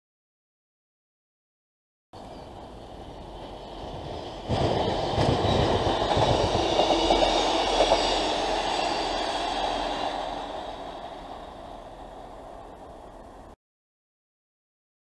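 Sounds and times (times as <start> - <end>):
diesel train passing: 2.2 - 13.6.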